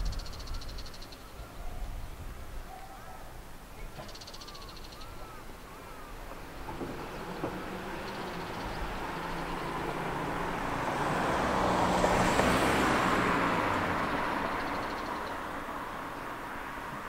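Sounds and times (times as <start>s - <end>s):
vehicle passing by: 6.4s - 17.0s.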